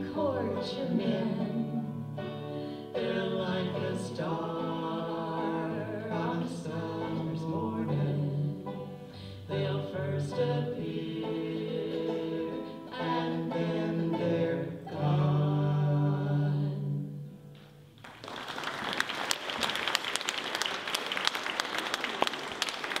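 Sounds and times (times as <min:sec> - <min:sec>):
voices singing with a band: 0:00.0 - 0:01.9, 0:03.0 - 0:08.6, 0:09.5 - 0:17.1
audience applause: 0:18.0 - 0:23.0.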